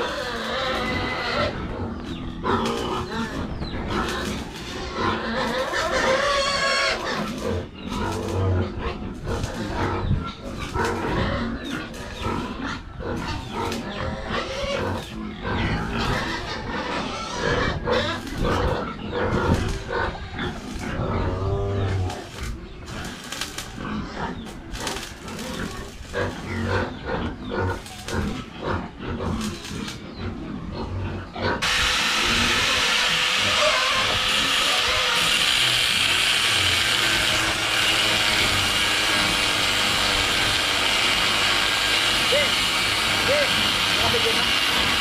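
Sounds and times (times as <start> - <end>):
pigs squealing and grunting: 0.0 - 45.0
loud steady hiss: 31.6 - 45.0.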